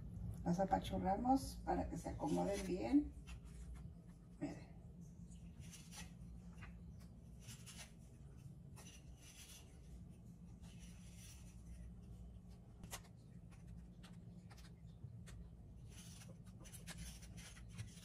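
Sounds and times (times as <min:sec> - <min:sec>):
low steady hum: 0:00.0 - 0:18.0
biscuits scraping and tapping: 0:05.4 - 0:18.0.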